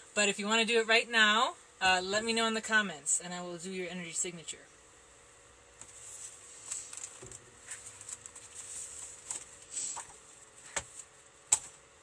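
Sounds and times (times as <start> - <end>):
rustling and handling noise: 5.8 - 12.0.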